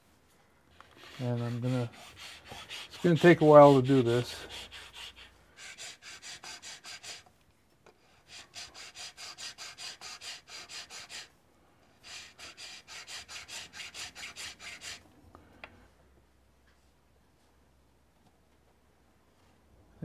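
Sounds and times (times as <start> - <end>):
file rasping on wood: 0.8 - 7.2, 8.2 - 11.3, 12.0 - 15.0.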